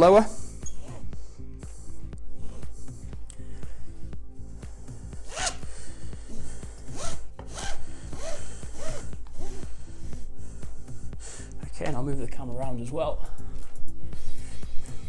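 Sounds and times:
background music: 0:00.0 - 0:15.0
straps zipping through buckles: 0:05.2 - 0:05.7, 0:06.3 - 0:09.7.

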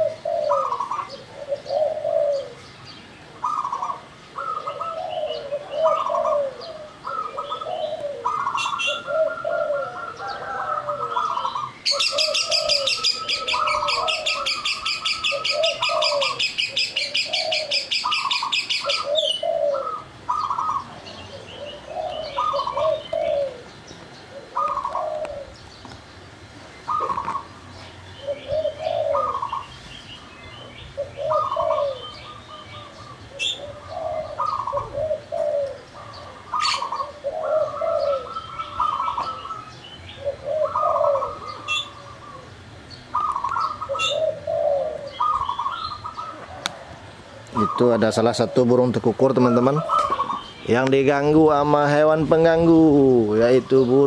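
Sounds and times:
doves cooing: 0:00.0 - 0:54.0.

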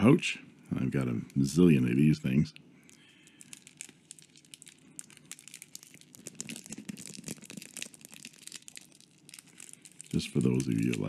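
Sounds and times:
plastic sleeve crinkling: 0:02.8 - 0:11.0.

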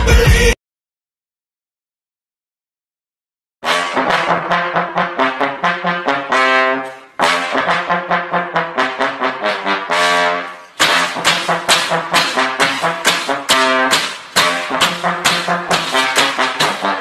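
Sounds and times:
punchy brass notes: 0:03.6 - 0:17.0.

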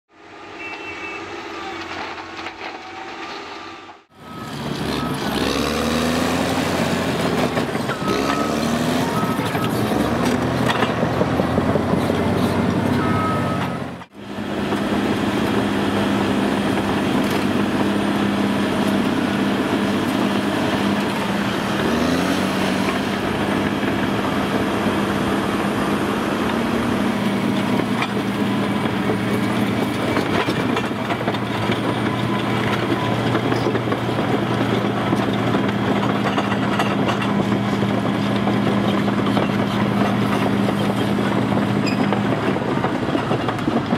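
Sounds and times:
steel tracks clattering: 0:00.7 - 0:04.1, 0:22.9 - 0:43.9
diesel engine running under load: 0:04.1 - 0:43.9.

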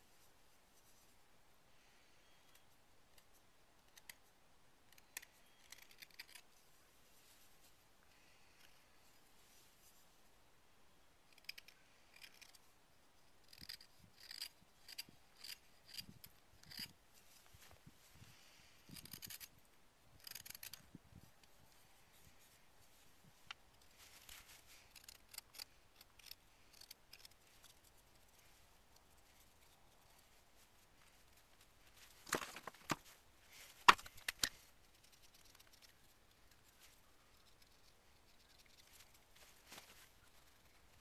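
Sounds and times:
knife shaving wood: 0:04.9 - 0:06.6, 0:13.4 - 0:17.4, 0:18.8 - 0:19.6, 0:20.2 - 0:23.0, 0:23.7 - 0:41.0.

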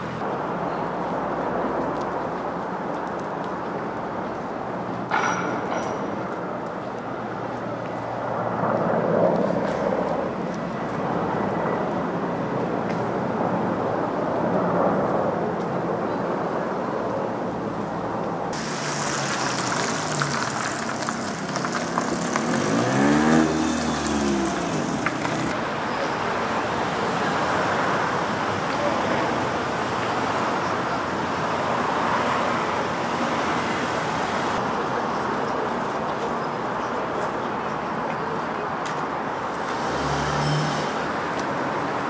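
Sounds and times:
traffic hum: 0:00.0 - 0:42.0
vehicles passing: 0:00.0 - 0:42.0
car passing close: 0:18.6 - 0:26.0, 0:39.6 - 0:42.0.

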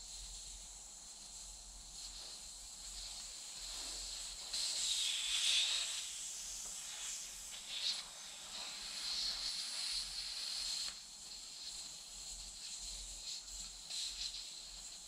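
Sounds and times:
air hissing out of inner tube: 0:00.0 - 0:15.0.

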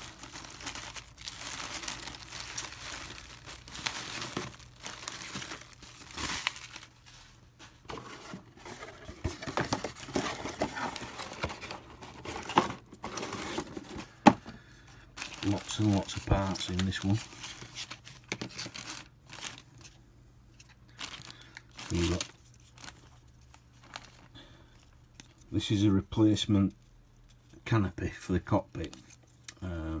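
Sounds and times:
plastic bags crinkling: 0:00.0 - 0:14.4, 0:15.2 - 0:19.9, 0:20.8 - 0:25.4.

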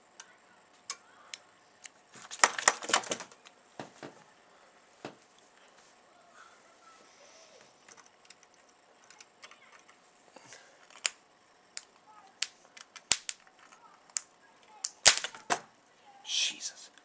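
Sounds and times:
electric arcing snaps: 0:00.9 - 0:03.5, 0:11.0 - 0:13.5, 0:14.1 - 0:15.6.

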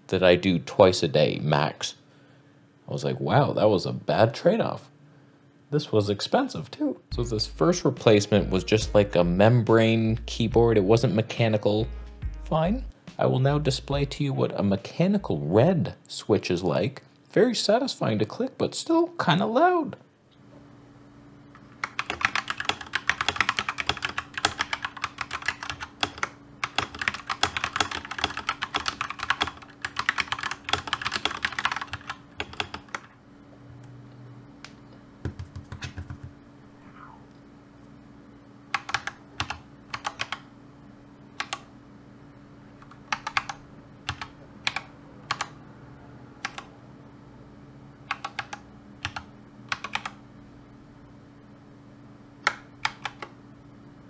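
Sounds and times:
mechanical keyboard typing: 0:21.8 - 0:33.1, 0:35.3 - 0:36.3, 0:38.7 - 0:40.4, 0:41.4 - 0:41.6, 0:42.8 - 0:45.6, 0:46.4 - 0:46.7, 0:48.1 - 0:50.2, 0:52.4 - 0:53.3.

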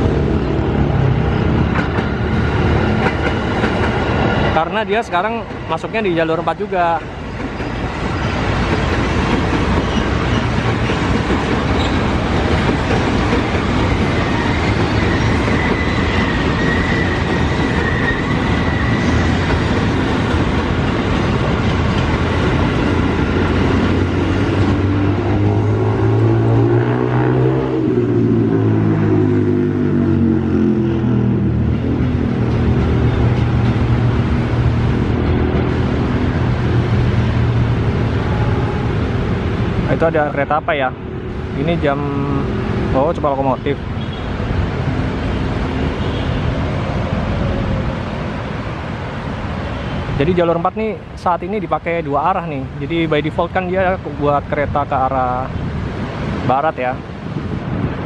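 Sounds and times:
train wheels clattering on rail: 0:01.5 - 0:04.6, 0:07.0 - 0:26.3, 0:31.7 - 0:37.3.

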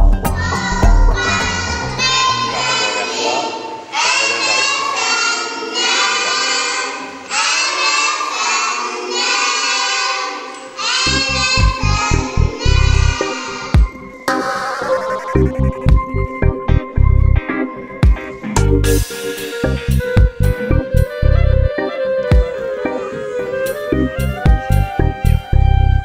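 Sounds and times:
background music with low beat: 0:00.0 - 0:01.7, 0:13.8 - 0:23.0, 0:23.7 - 0:26.0
children singing together: 0:00.2 - 0:14.8.

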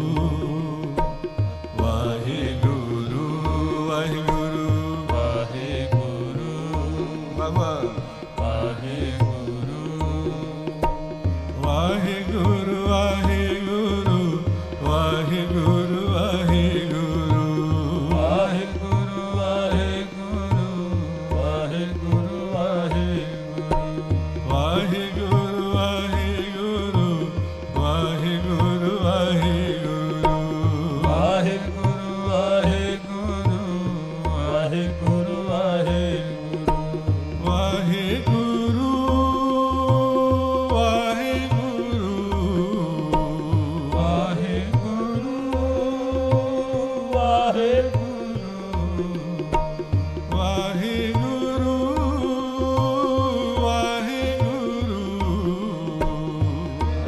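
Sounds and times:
person singing: 0:00.0 - 0:10.8, 0:11.5 - 0:57.0
harmoniums holding a chord: 0:00.0 - 0:57.0
tabla rhythm: 0:00.0 - 0:57.0.

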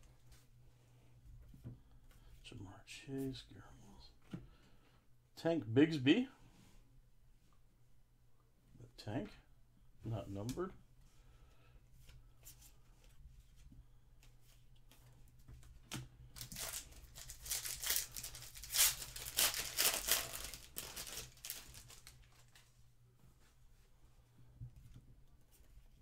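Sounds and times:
foil wrapper tearing and crinkling: 0:16.4 - 0:22.5.

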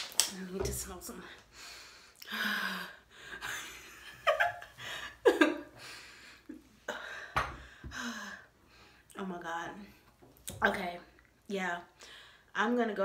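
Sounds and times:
breaths: 0:01.3 - 0:03.4, 0:05.8 - 0:09.1, 0:12.0 - 0:12.6
woman laughing: 0:03.4 - 0:05.8.

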